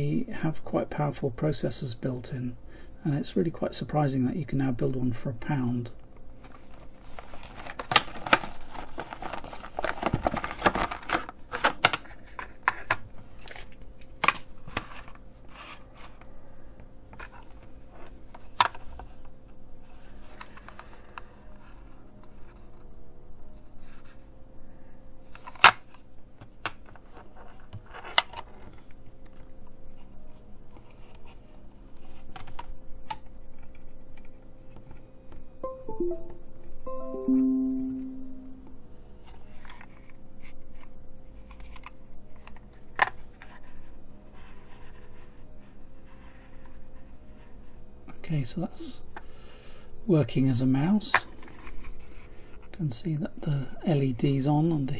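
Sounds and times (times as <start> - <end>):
cable rustling and shuffling: 6.4 - 12.8.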